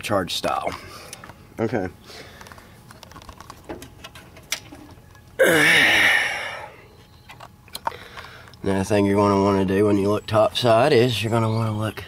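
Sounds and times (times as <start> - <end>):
breathy vocal sound: 5.4 - 6.9.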